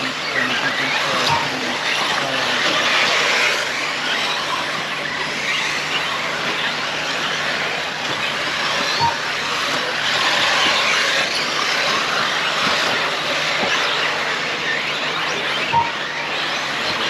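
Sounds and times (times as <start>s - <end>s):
rc car motor whine: 0.0s - 17.0s
short beep: 1.2s - 1.6s, 9.0s - 9.3s, 15.7s - 16.3s.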